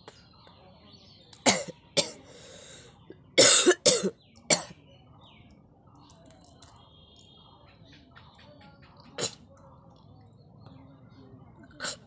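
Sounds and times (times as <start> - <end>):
woman coughing: 1.5 - 2.2, 3.4 - 4.7.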